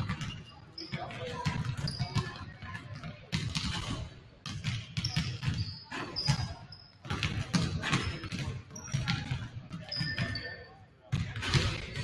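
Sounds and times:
basketballs bouncing on wood floor: 0.0s - 12.0s
short high-pitched squeaks: 9.9s - 10.8s.

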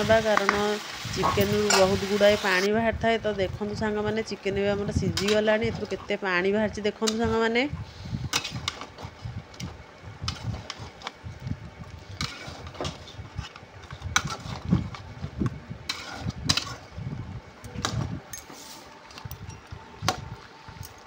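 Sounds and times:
chicken frying: 0.0s - 2.7s, 7.9s - 17.2s
spatula scraping a metal pan: 12.1s - 14.7s, 15.8s - 16.9s.

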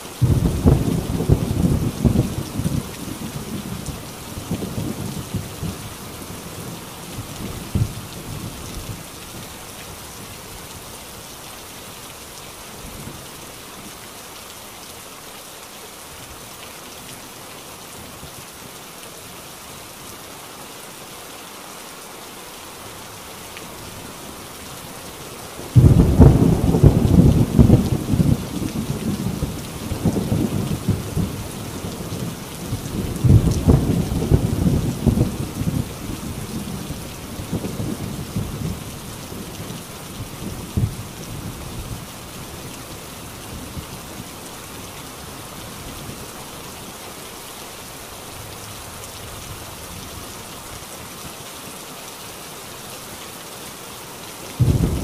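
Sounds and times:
heavy rain on a tin roof: 0.0s - 55.0s
thunder rumble: 25.7s - 31.4s, 32.1s - 38.8s, 54.6s - 55.0s
loud clap of thunder: 54.6s - 55.0s.

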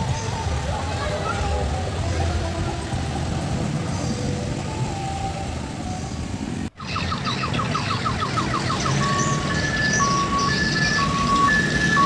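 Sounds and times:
minibus engines running: 0.0s - 12.0s.

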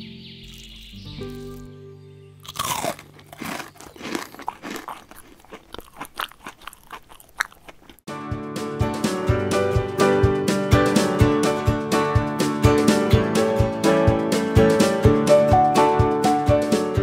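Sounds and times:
crunching fried food: 0.4s - 1.7s, 2.4s - 8.1s
plucked guitar music with beat: 8.1s - 17.0s.

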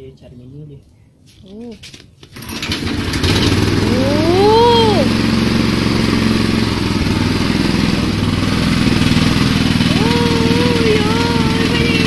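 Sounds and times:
small petrol engine running: 2.3s - 12.0s
person calling out: 3.8s - 5.2s, 9.9s - 12.0s.

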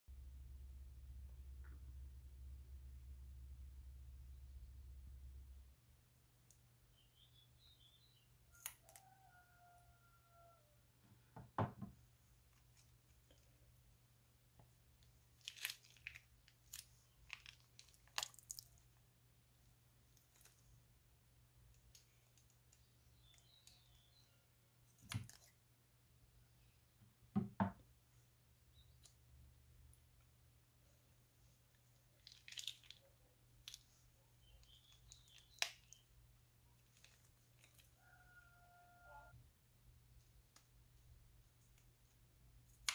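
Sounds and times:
slime squeaks: 32.2s - 36.0s.

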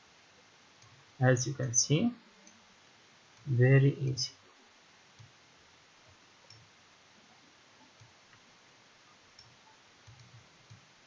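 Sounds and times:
computer mouse clicks: 6.4s - 6.7s, 7.8s - 8.4s, 9.3s - 10.9s.

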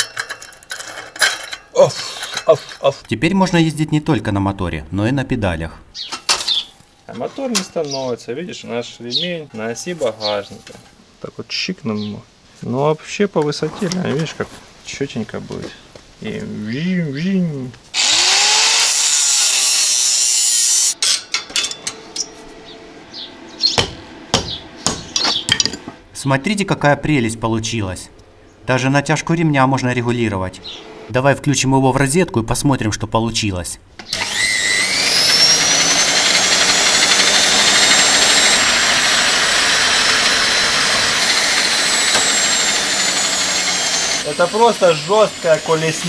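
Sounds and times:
metal clatter: 0.0s - 3.0s
angle grinder cutting steel: 18.0s - 21.2s, 34.0s - 46.0s
grinder disc winding down: 34.0s - 46.0s
washing machine motor whining: 34.1s - 46.0s.

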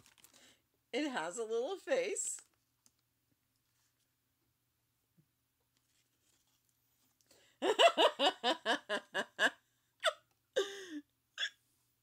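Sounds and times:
woman laughing: 7.6s - 11.0s.

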